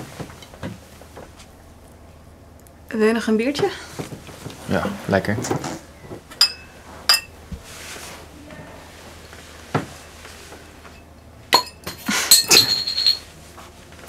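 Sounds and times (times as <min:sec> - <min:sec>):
glass bottles clinking on table: 0:06.4 - 0:07.3, 0:11.6 - 0:13.2.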